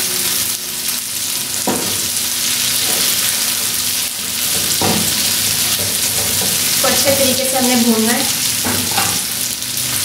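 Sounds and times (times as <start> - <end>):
meat sizzling in a frying pan: 0.0 - 10.0
utensil knocks on a pan: 1.7 - 2.0, 4.6 - 5.1.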